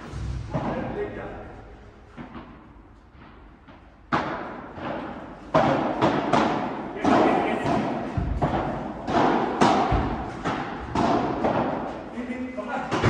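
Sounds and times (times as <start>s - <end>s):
padel ball hits: 4.1s - 11.8s.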